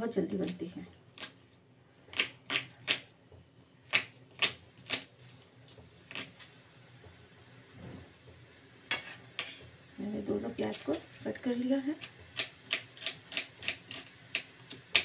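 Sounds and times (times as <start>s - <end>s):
knife chopping onion: 2.1s - 3.1s, 3.9s - 5.1s, 12.0s - 15.0s.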